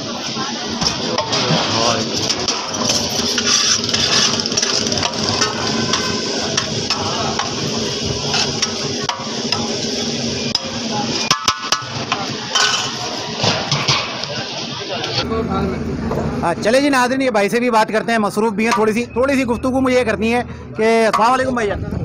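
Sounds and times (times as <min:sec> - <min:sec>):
background chatter: 0:00.0 - 0:22.0
metal cooking pots clattering: 0:00.8 - 0:14.5.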